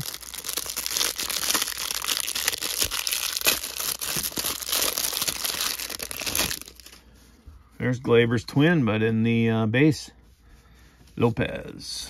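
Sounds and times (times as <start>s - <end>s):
plastic wrapper crinkling and tearing: 0.0s - 7.0s.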